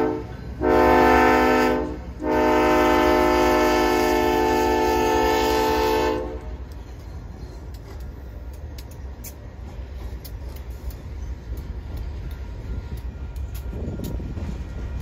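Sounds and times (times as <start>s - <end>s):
locomotive air horn chord: 0.0s - 6.6s
diesel locomotives rumbling past: 0.0s - 15.0s
light clicks: 6.6s - 14.2s.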